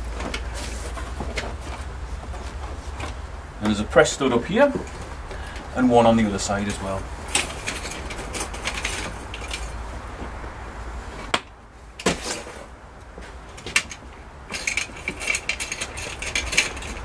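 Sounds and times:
fabric cover rustling: 0:00.0 - 0:03.4.

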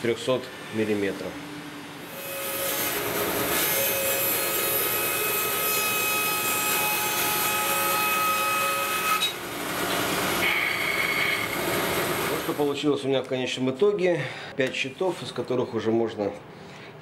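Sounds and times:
bandsaw cutting wood: 0:02.1 - 0:12.6.

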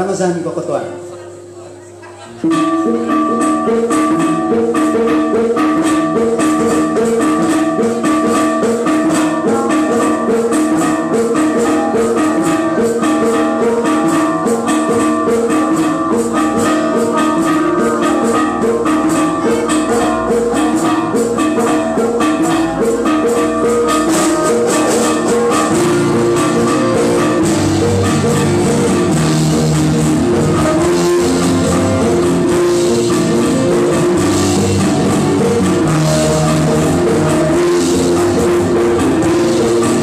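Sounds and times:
live band playing: 0:00.0 - 0:40.0
bass guitar: 0:02.4 - 0:40.0
bell-like tuned percussion melody: 0:02.4 - 0:40.0.

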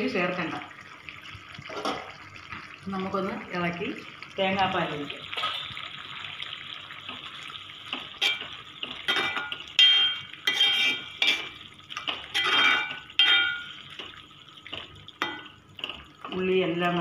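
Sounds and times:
spoon stirring stew in metal pot: 0:08.0 - 0:13.7.

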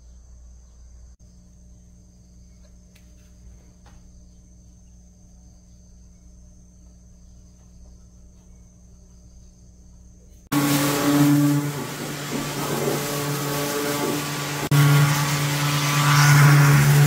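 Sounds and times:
low hum: 0:00.0 - 0:17.0
high-pitched whine: 0:10.5 - 0:17.0.

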